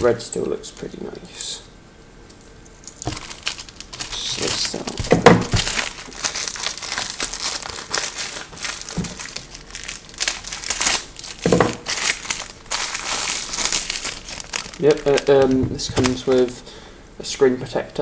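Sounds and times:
plastic packaging crinkling: 2.7 - 16.7.

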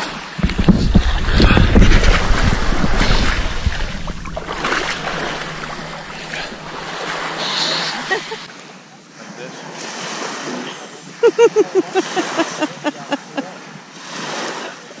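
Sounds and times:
sea water sloshing and splashing: 0.0 - 8.5
wind buffeting microphone: 0.1 - 8.4.

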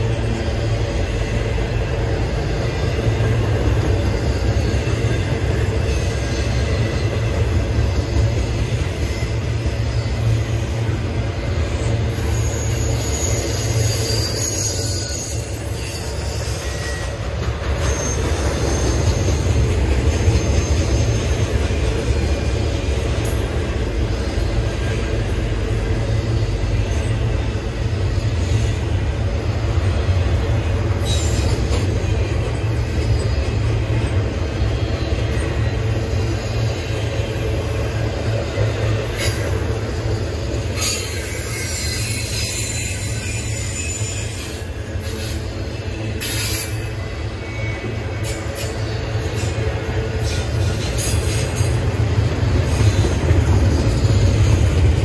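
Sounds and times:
train wheels rumbling on rail: 0.0 - 55.0
wheels squealing: 11.8 - 22.5, 38.7 - 55.0.

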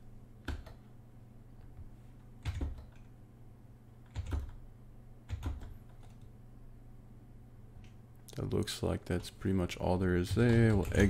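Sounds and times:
faint low hum: 0.0 - 11.0
keyboard keystrokes: 0.4 - 0.8, 2.4 - 3.1, 4.1 - 4.6, 5.3 - 6.3.

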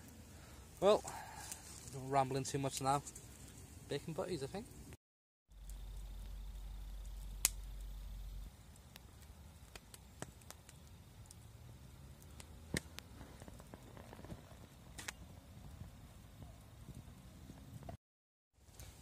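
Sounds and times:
campfire crackling and popping: 0.0 - 4.9, 5.5 - 18.0
low rumble: 5.5 - 8.6.

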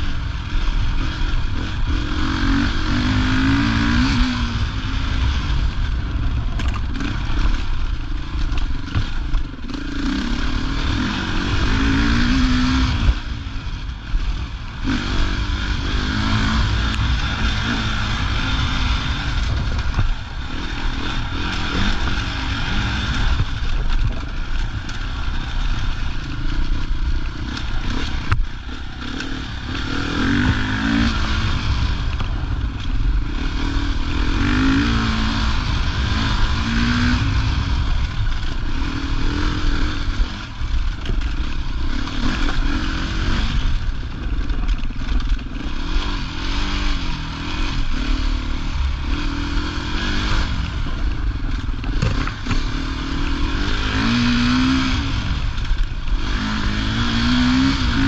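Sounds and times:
wind noise: 0.0 - 26.2
motorcycle engine revving: 0.0 - 58.0
bike clattering over rough ground: 50.8 - 52.8.

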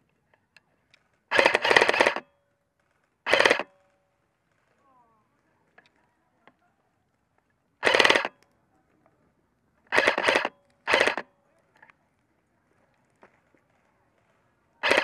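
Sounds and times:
faint clicks: 0.1 - 9.2
airsoft rifle full-auto bursts: 1.3 - 2.3, 3.2 - 3.9, 7.8 - 8.4, 9.9 - 11.3, 14.8 - 15.0.

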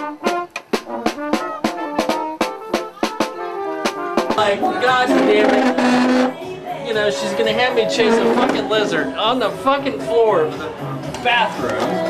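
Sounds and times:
snare drum beat: 0.0 - 6.4
brass band playing: 0.0 - 10.6.

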